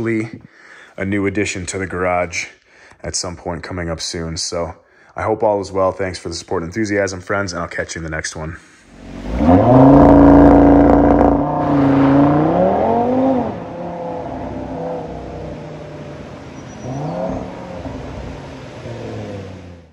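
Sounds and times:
car engine revving: 0:08.9 - 0:19.9.

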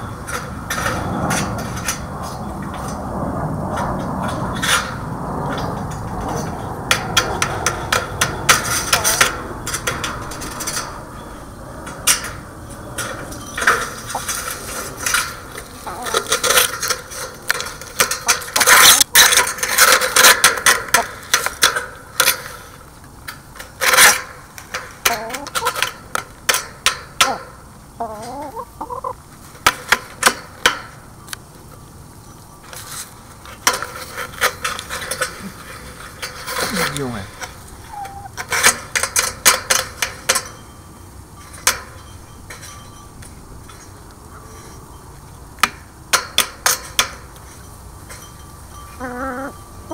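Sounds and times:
hens clucking: 0:07.3 - 0:19.0, 0:25.0 - 0:25.9, 0:27.2 - 0:29.2, 0:35.2 - 0:39.0, 0:49.0 - 0:49.9.

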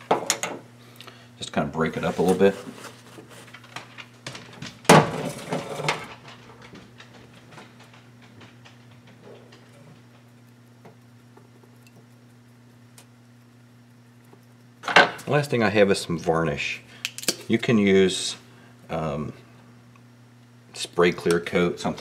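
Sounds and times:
steady low hum: 0:00.0 - 0:22.0
light ticks and brushing: 0:07.3 - 0:15.9.

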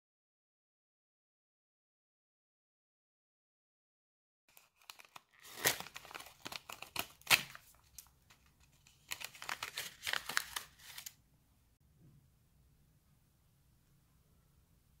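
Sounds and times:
paper sachet tearing: 0:04.5 - 0:08.1, 0:08.8 - 0:11.2
wrapper crinkling: 0:04.5 - 0:11.2.

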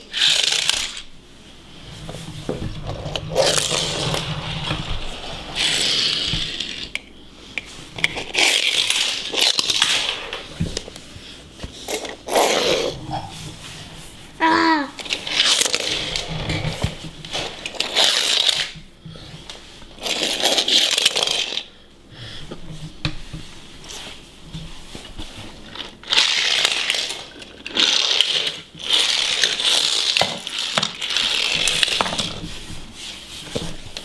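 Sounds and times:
toy airplane rolling on laminate floor: 0:00.0 - 0:01.1, 0:02.0 - 0:07.0, 0:15.0 - 0:18.8, 0:20.0 - 0:21.7, 0:25.6 - 0:32.5.

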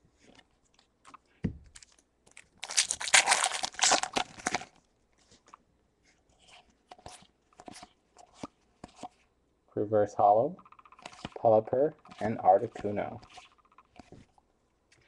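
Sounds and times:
foil wrapper tearing and crinkling: 0:01.8 - 0:04.8.

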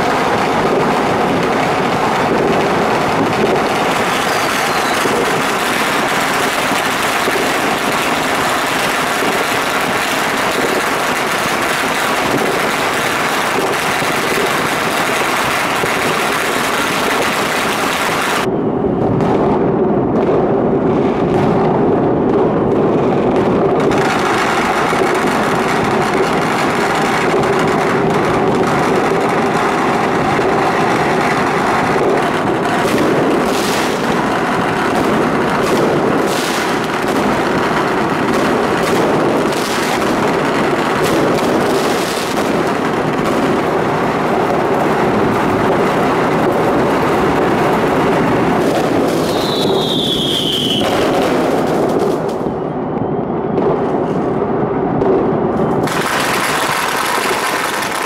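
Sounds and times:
distant fireworks crackling: 0:00.0 - 0:58.0
loud firework bangs: 0:00.0 - 0:58.0
falling firework whistle: 0:03.2 - 0:19.2, 0:48.6 - 0:54.4.

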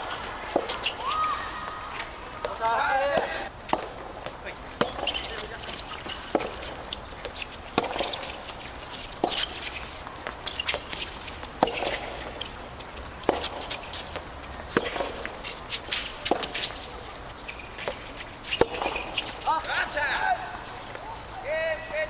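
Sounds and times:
tennis ball struck by rackets: 0:00.0 - 0:19.4.

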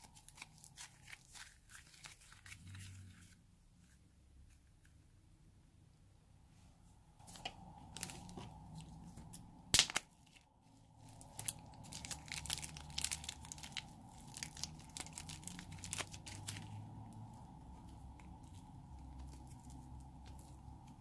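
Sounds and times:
balloon crackling and tearing: 0:11.2 - 0:16.8.

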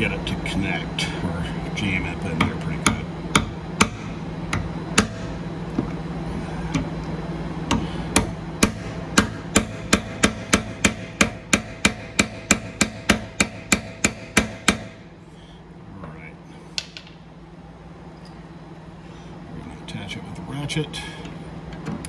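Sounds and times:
low hum: 0:00.0 - 0:21.8
hammer tapping metal: 0:02.4 - 0:05.9, 0:07.7 - 0:15.0.

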